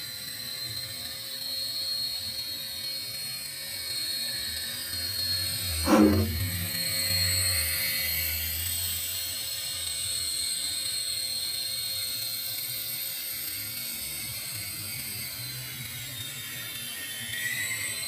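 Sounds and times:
toy helicopter rotors whirring: 9.0 - 18.0.

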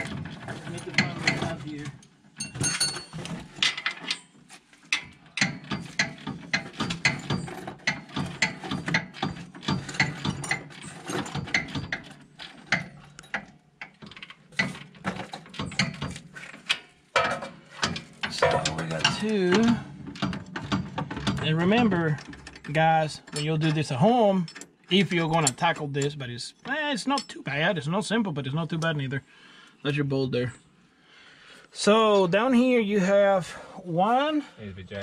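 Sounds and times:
metal tools clinking: 0.3 - 4.4, 5.4 - 25.8, 26.6 - 27.5.

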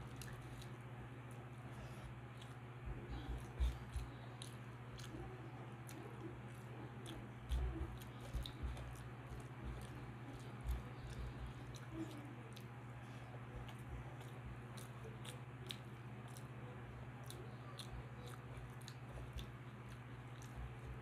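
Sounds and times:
chewing: 0.0 - 21.0
steady low hum: 0.0 - 21.0.

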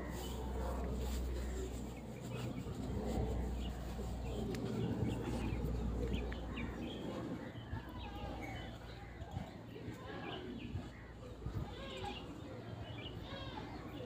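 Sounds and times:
birds chirping: 0.0 - 11.2.

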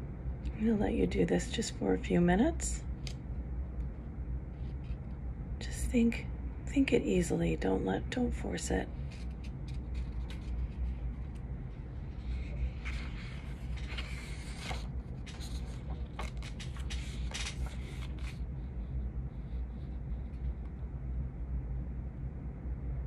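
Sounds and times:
low room rumble: 0.0 - 23.0
rustling scraping and clicks: 12.2 - 18.4.

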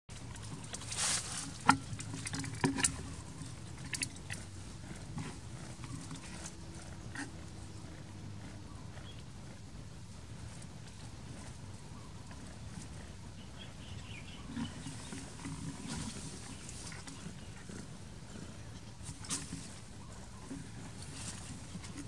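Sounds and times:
dry leaves rustling: 0.8 - 1.6
cat purring: 11.3 - 22.0.

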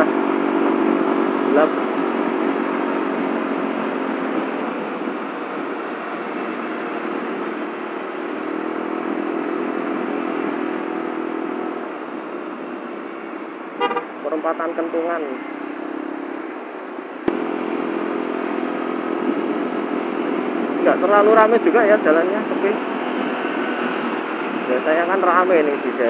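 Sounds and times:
road and wind noise: 0.0 - 26.0
scooter engine running: 17.3 - 21.6.

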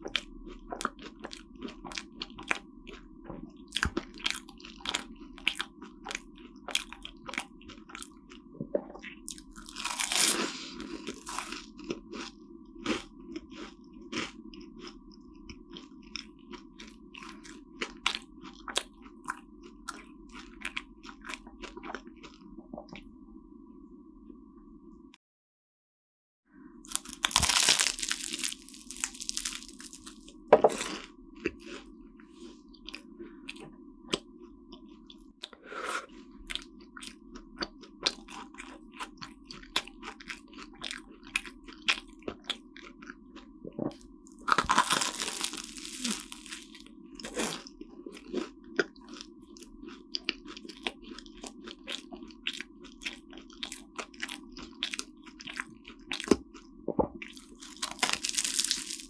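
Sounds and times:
faint steady hum: 0.0 - 25.2, 26.5 - 59.0
pastry crust crunching: 9.1 - 10.4, 26.8 - 31.8, 43.9 - 48.5, 57.2 - 59.0.

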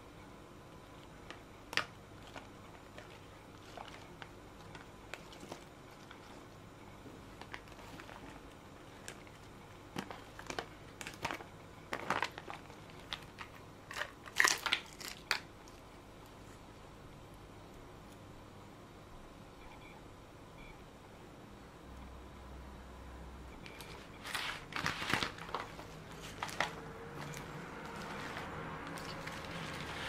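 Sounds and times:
plastic crinkling: 1.2 - 6.5, 7.3 - 15.8, 23.7 - 30.0.

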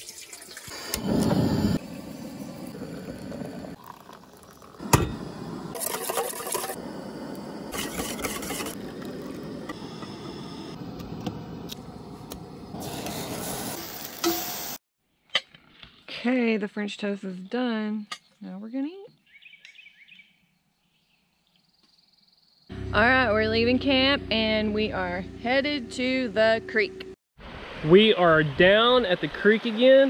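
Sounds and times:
water pouring into a kettle: 0.0 - 5.1.

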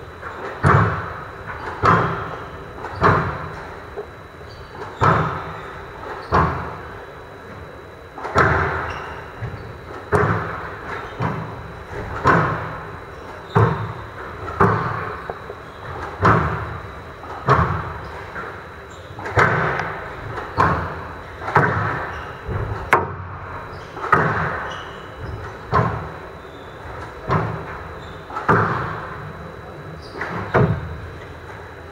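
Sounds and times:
squash ball hitting rackets and walls: 0.2 - 3.7, 4.8 - 5.6, 6.2 - 6.8, 8.2 - 18.6, 19.2 - 26.2, 26.8 - 29.3.

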